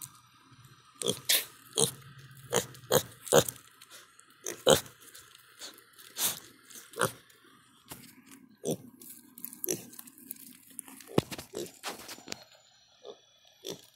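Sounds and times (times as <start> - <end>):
pig chewing: 1.0 - 7.2, 8.6 - 12.1
pig snuffling and grunting: 1.0 - 7.2, 8.6 - 12.2.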